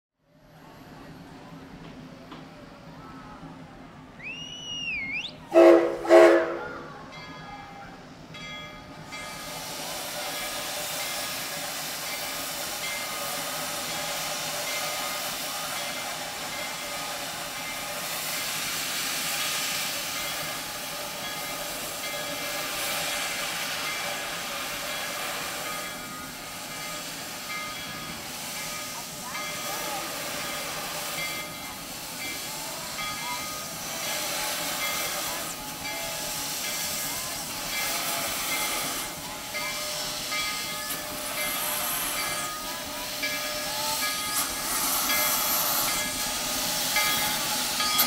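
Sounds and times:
high whistled note: 4.2 - 6.8
steam whistle blasts: 4.2 - 6.9
steam hissing: 8.8 - 48.0.

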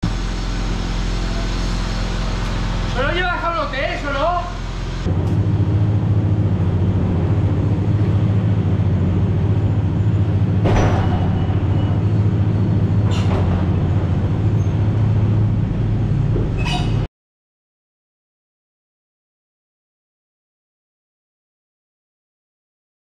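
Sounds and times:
truck engine and road noise: 0.0 - 17.1.

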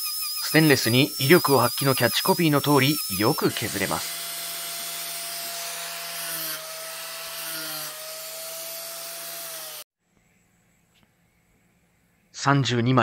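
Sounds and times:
disc grinder grinding metal: 0.0 - 9.8.

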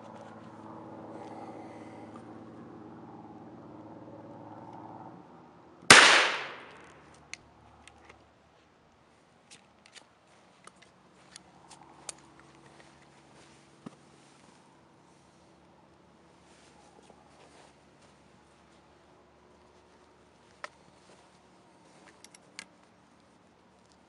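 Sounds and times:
shotgun blast with echo: 5.9 - 6.8.

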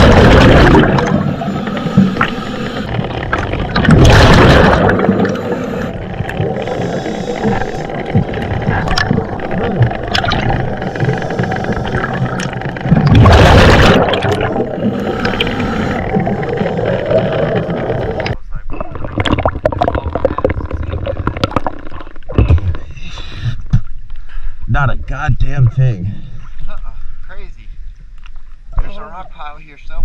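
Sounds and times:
exhaled bubbles rushing: 0.0 - 23.0
underwater hiss: 1.1 - 3.0, 5.1 - 9.0, 10.6 - 12.6, 14.4 - 18.4.

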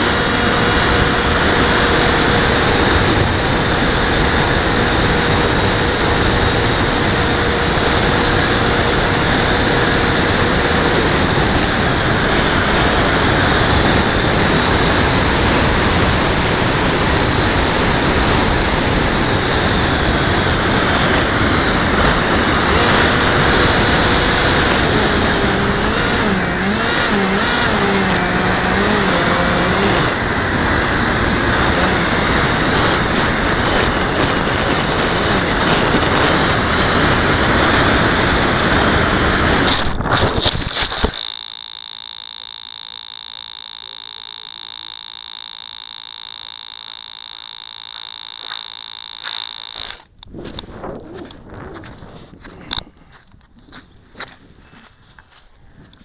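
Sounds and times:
model airplane motor whine: 0.0 - 50.7
wind on microphone: 50.2 - 53.2.

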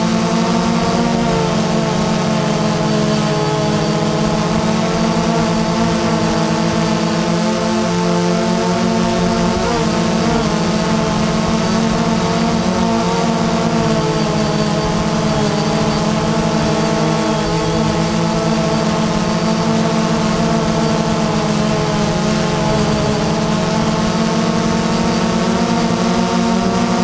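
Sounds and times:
drone propellers buzzing: 0.0 - 27.0.

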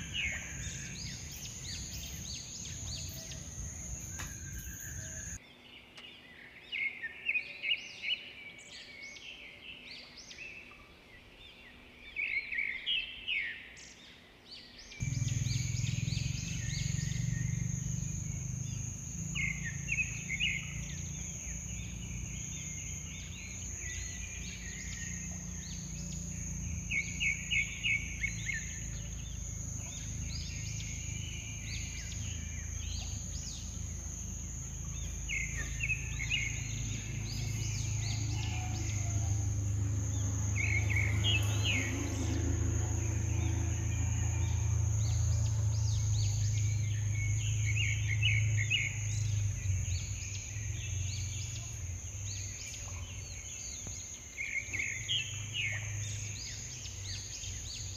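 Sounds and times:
birds chirping: 0.0 - 5.4, 15.0 - 57.9
high-pitched whine: 0.0 - 5.4, 15.0 - 57.9
low rumble: 15.0 - 47.5.

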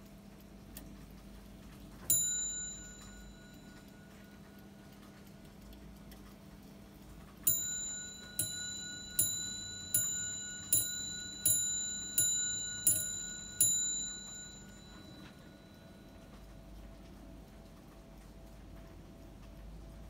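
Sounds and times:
clock bell striking: 2.1 - 4.7, 7.4 - 16.6
clock ticking: 2.1 - 16.9.

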